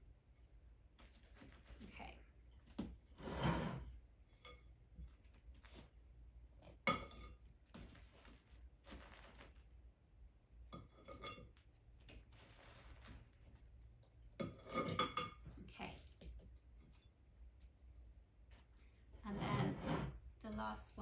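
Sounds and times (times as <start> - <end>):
metal clinking against pot: 6.9 - 7.4, 10.7 - 11.6, 14.4 - 15.5.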